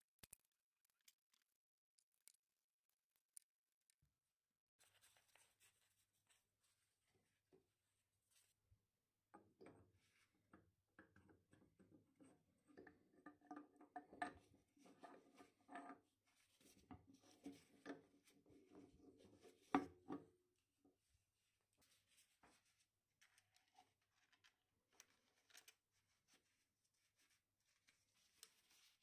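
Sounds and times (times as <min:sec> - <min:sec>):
small metal clicks: 0:00.0 - 0:02.5.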